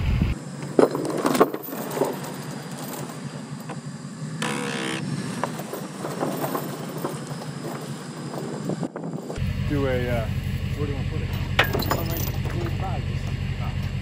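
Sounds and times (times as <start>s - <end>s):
trailer rattling and knocking: 5.3s - 9.5s, 10.9s - 14.0s.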